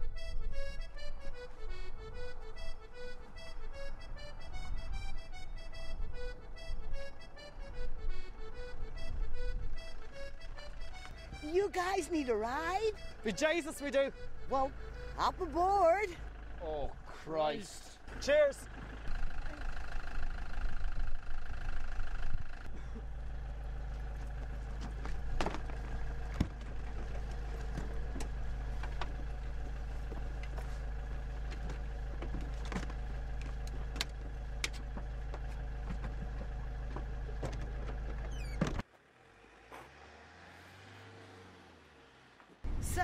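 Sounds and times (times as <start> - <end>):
motorhome engine idling: 0.0 - 40.0
vehicle driving away rumble: 16.1 - 43.0
door and luggage clicks and knocks: 37.4 - 38.8.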